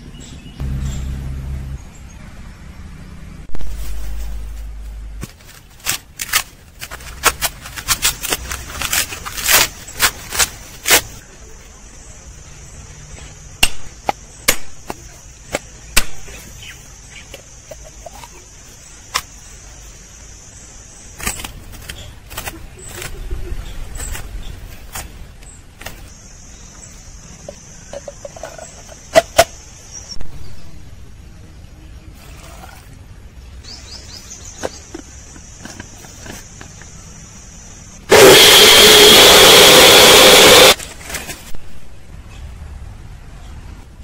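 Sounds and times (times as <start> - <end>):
high-pitched whine: 0.6 - 2.5, 38.0 - 40.8.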